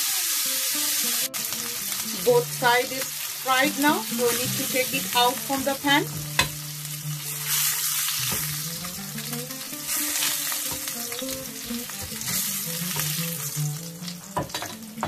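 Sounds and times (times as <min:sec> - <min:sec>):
fish sizzling in hot oil: 0:00.0 - 0:15.0
spatula scraping a pan: 0:12.0 - 0:13.4.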